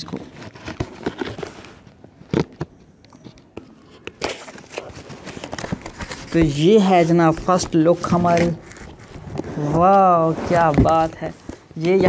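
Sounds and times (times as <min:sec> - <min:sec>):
packaging crackling and crinkling: 0:00.1 - 0:12.0
knife tearing cardboard parcel wrapping: 0:04.2 - 0:11.6.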